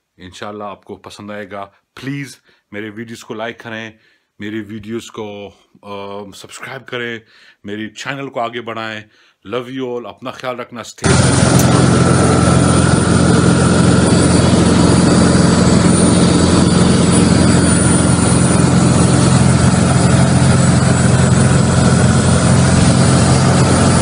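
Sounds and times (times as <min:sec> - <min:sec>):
propeller aircraft engine drone: 0:11.0 - 0:24.0.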